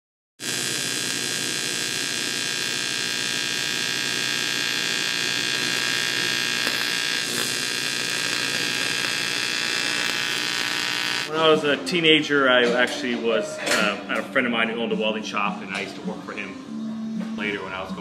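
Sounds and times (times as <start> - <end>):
welding arc buzzing: 0.4 - 11.3.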